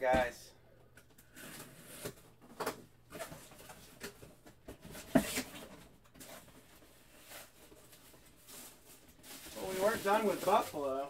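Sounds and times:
cardboard flaps scraping and rustling: 7.2 - 10.8.

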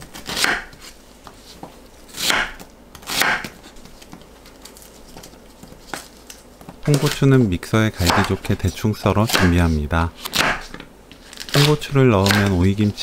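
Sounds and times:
knife slicing onion on board: 0.0 - 4.2, 8.0 - 8.4, 9.2 - 12.7.

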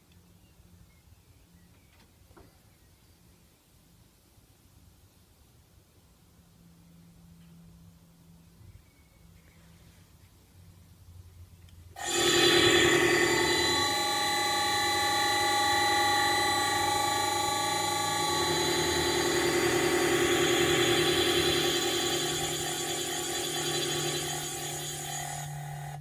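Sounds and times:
low electrical hum: 0.0 - 26.0
electric motor whining: 12.0 - 26.0.

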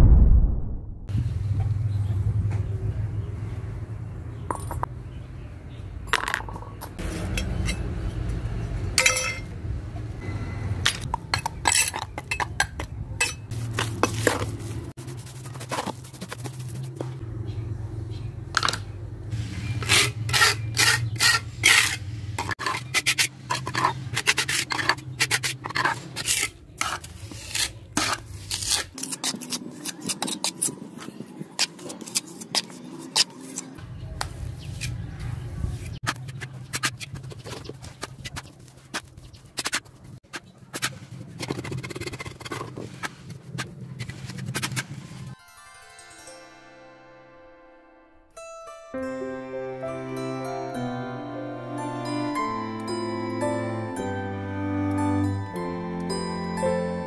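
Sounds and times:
trowel scraping and clinking: 10.9 - 14.6, 19.8 - 33.8
wet cement being mixed: 13.5 - 17.2, 19.8 - 35.0, 36.0 - 45.4.

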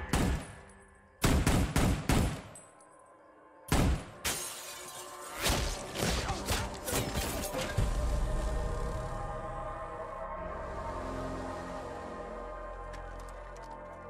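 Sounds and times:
rifle fire: 1.2 - 2.6
glass shattering: 4.2 - 5.2.

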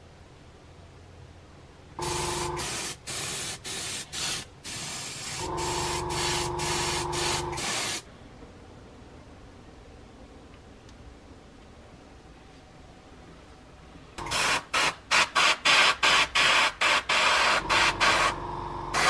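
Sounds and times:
airbrush hissing: 2.0 - 8.1, 14.2 - 19.0.

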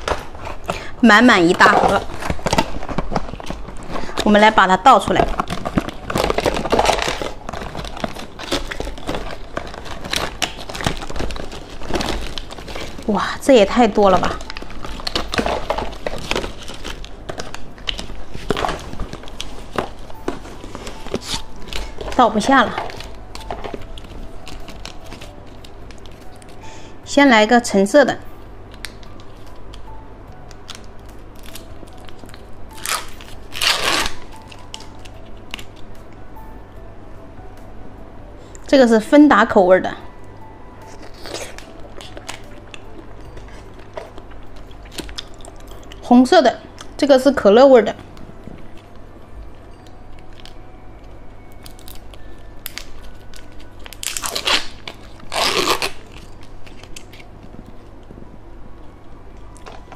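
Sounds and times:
plastic wrapper crinkling: 0.0 - 26.7, 28.7 - 35.9, 40.8 - 46.1, 48.2 - 58.0
plastic wrapper tearing: 1.5 - 26.6, 30.4 - 35.8, 40.8 - 46.0, 51.4 - 57.4.

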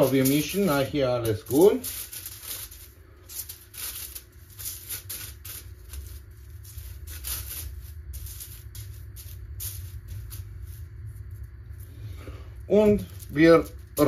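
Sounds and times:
hand rubbing spice on foil: 0.0 - 14.0.

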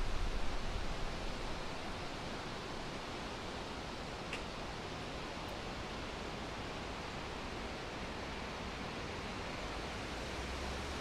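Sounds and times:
wind rumble on microphone: 0.0 - 4.1
wind through leafy trees: 0.0 - 11.0.

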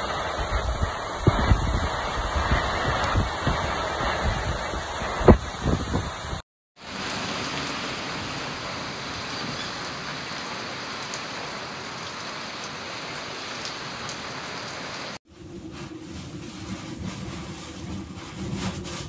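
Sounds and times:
steady rain: 0.0 - 15.2.

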